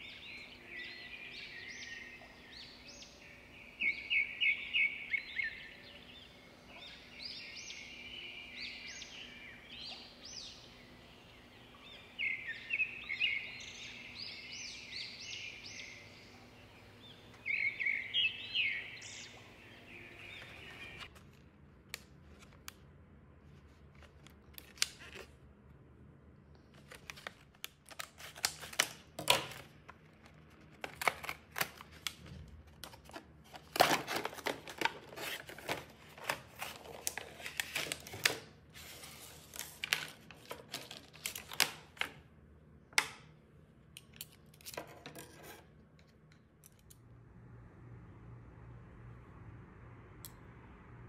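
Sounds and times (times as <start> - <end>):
plastic packaging crackling: 26.7 - 42.2.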